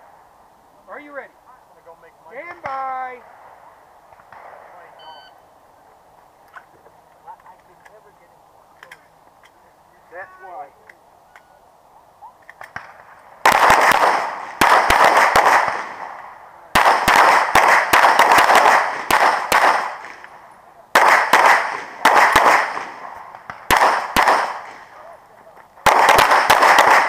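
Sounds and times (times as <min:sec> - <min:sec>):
pistol shots: 0:12.6 - 0:20.3, 0:20.9 - 0:24.9, 0:25.8 - 0:27.0.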